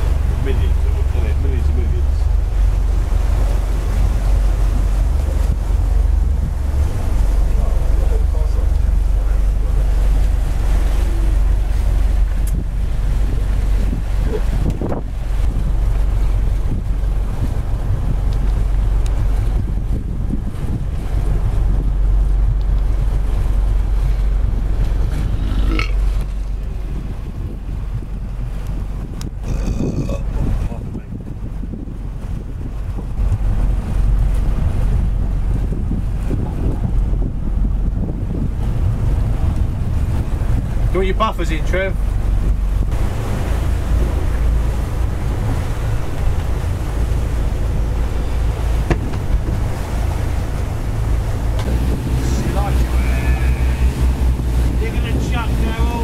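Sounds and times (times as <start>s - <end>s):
motorboat engine running: 0.0s - 56.0s
water rushing past hull: 0.0s - 56.0s
wind buffeting microphone: 0.0s - 56.0s
short knock: 48.9s - 49.3s.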